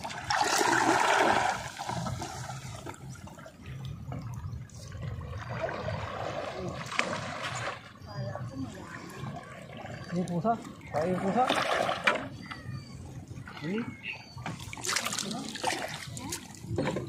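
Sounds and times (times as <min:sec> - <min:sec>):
shallow water splashing: 0:00.0 - 0:12.6, 0:13.4 - 0:17.0.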